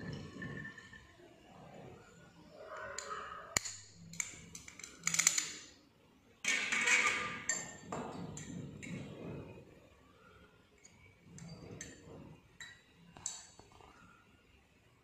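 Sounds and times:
glass test tubes clinking: 0:00.0 - 0:01.2, 0:06.5 - 0:08.5.

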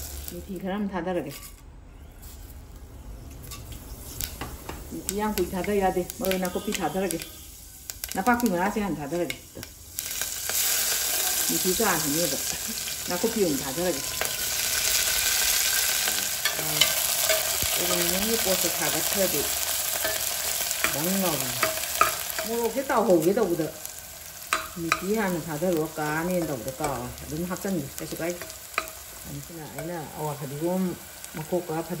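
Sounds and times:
greens sizzling in a pot: 0:00.0 - 0:00.9, 0:03.4 - 0:32.0
metal spoon stirring in a pot: 0:13.6 - 0:30.2.

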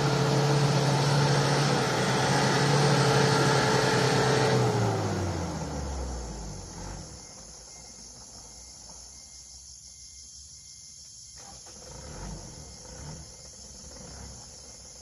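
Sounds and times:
vehicle driving away: 0:00.0 - 0:08.9, 0:11.4 - 0:15.0
insects droning: 0:04.8 - 0:15.0.

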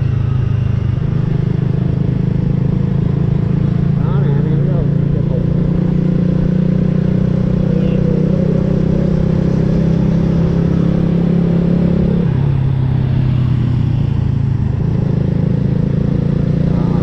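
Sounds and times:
motorcycle engine cruising: 0:00.0 - 0:17.0.

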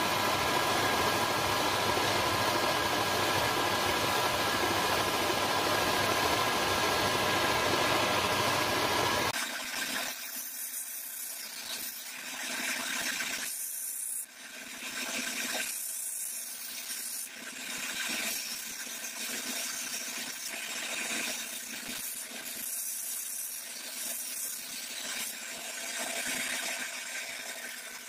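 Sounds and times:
machine running hum: 0:00.0 - 0:09.3.

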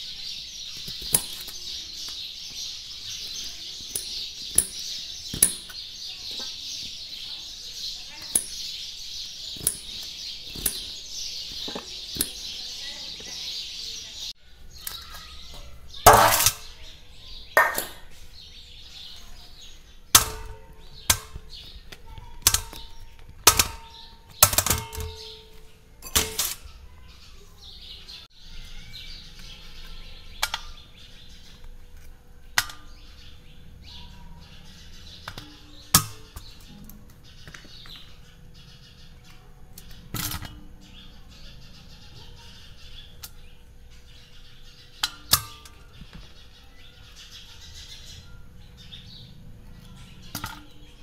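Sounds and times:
knocks on steel plates ringing: 0:16.1 - 0:16.7, 0:17.6 - 0:18.0, 0:20.2 - 0:21.4, 0:23.5 - 0:26.6
knife tapping on steel tumbler: 0:17.6 - 0:18.1.

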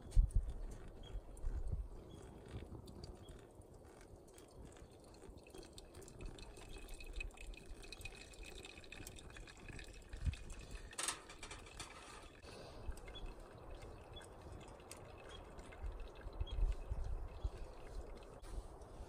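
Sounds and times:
wood fire crackling: 0:00.8 - 0:15.4
water trickling into coffee filter: 0:02.4 - 0:18.6
metal cup clanking: 0:10.8 - 0:12.4.

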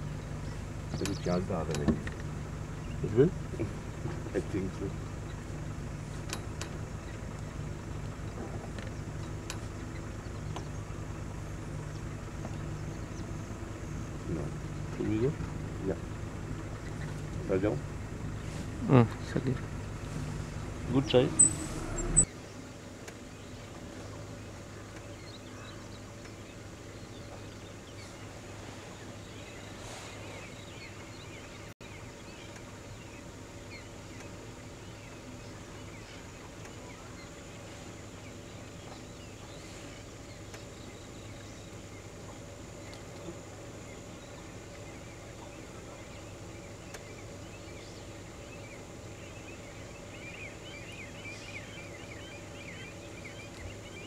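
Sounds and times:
bird chirps: 0:00.0 - 0:01.5, 0:19.2 - 0:22.6, 0:42.8 - 0:54.0
steady low hum: 0:00.0 - 0:54.0.

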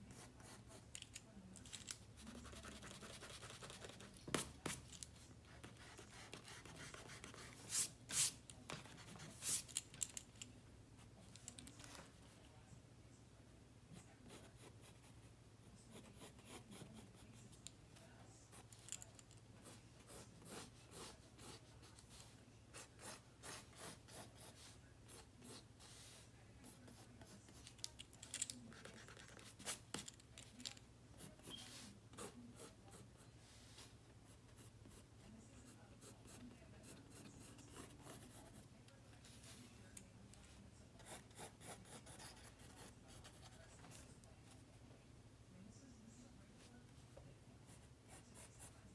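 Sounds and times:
pencil scratching on paper: 0:00.1 - 0:01.0, 0:02.2 - 0:04.9, 0:05.5 - 0:09.7, 0:15.9 - 0:17.5, 0:19.6 - 0:27.6, 0:31.2 - 0:35.0, 0:35.6 - 0:38.6, 0:41.0 - 0:44.0.

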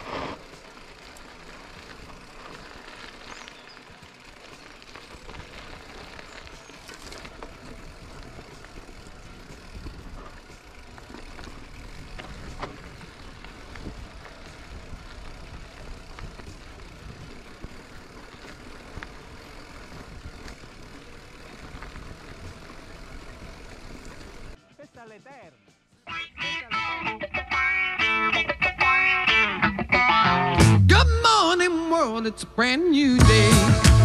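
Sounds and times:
bike clicks and knocks: 0:00.0 - 0:24.6
tyres crunching over dirt and stones: 0:00.0 - 0:24.6.

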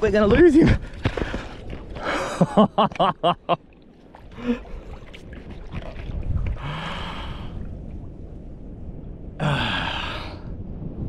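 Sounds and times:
man laughing: 0:02.1 - 0:03.6
breathy exhale: 0:06.6 - 0:07.6, 0:09.4 - 0:10.6.

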